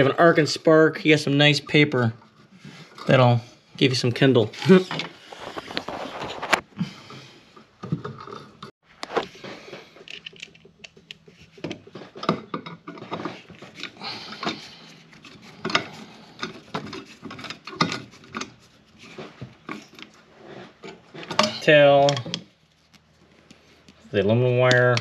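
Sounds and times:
hands handling wires and tool: 4.4 - 6.7, 7.6 - 25.0.

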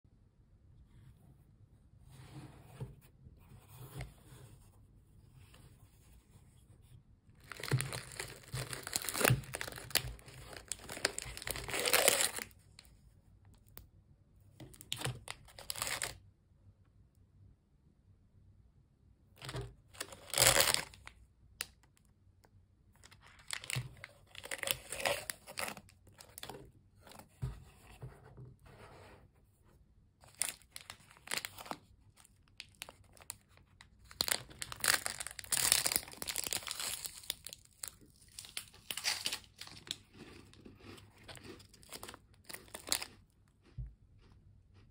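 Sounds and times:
plastic wrappers crinkling and tearing: 7.4 - 12.9, 14.7 - 16.2, 19.4 - 21.1, 23.0 - 26.5, 30.2 - 43.2.

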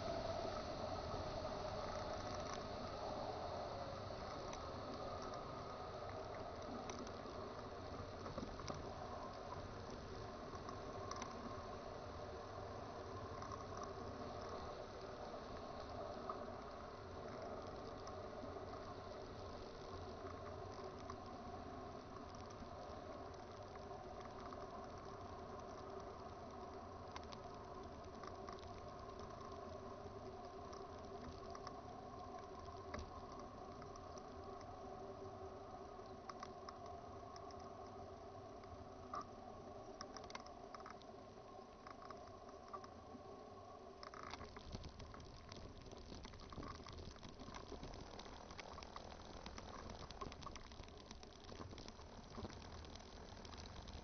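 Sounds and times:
wind crackling on microphone: 43.9 - 54.0.

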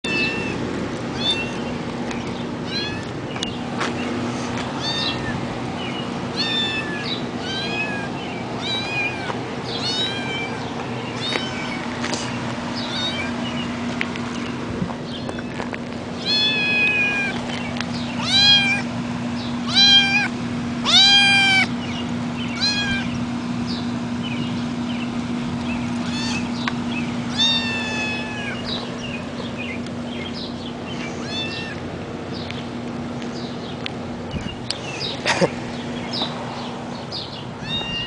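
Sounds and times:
kitten meowing: 0.1 - 0.6, 1.2 - 1.7, 2.6 - 3.1, 4.8 - 5.4, 6.3 - 11.8, 12.8 - 13.4, 16.2 - 17.4, 18.2 - 18.9, 19.6 - 21.7, 22.5 - 23.2, 26.0 - 26.7, 27.3 - 28.8, 31.0 - 31.8, 37.6 - 38.0.

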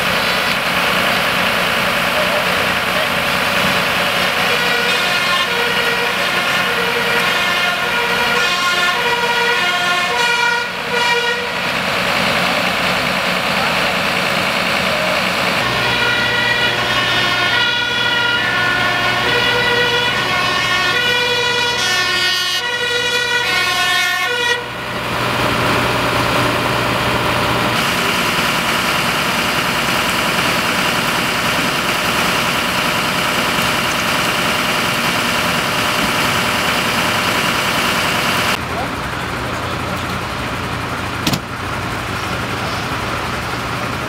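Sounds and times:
engine running: 0.0 - 44.0
two-tone siren: 4.4 - 11.6, 15.6 - 24.9.

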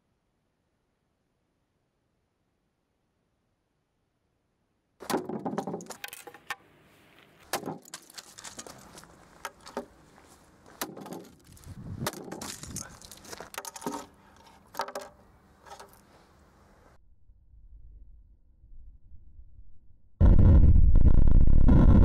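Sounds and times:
small pieces clattering on table: 5.4 - 6.6, 7.7 - 9.8, 11.0 - 16.0.

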